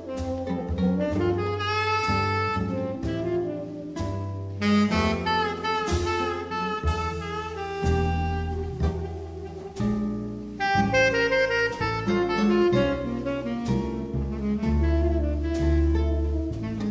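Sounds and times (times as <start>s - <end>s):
jazz combo playing a ballad: 0.0s - 16.9s.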